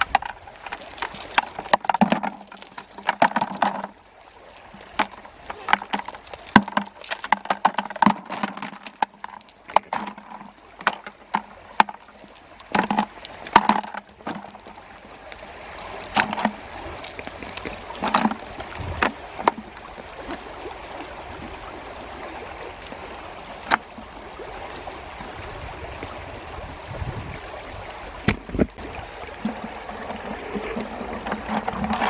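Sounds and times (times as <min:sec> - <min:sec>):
knocks and splashes in bucket: 0:00.0 - 0:20.4, 0:28.2 - 0:32.0
stream flowing over stones: 0:00.0 - 0:32.0.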